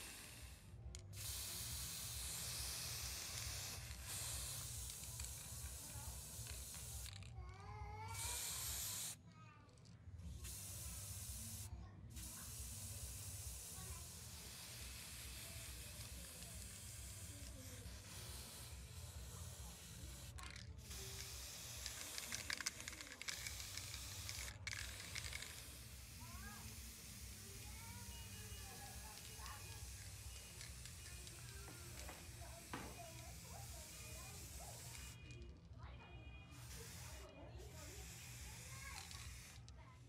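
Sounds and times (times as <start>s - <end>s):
spray paint can hissing: 0.0s - 9.2s, 10.3s - 35.6s, 36.5s - 40.0s.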